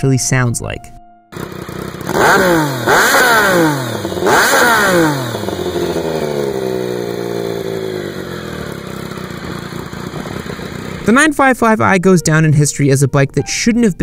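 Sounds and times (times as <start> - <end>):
motorcycle engine revving: 1.3 - 11.3.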